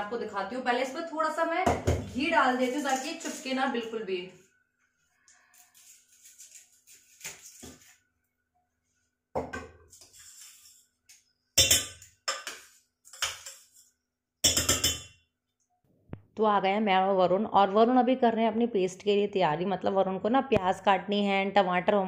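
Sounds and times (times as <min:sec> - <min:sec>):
steel spoon scraping a vessel: 0:09.9 - 0:11.0
spoon clinking on steel: 0:11.6 - 0:15.2.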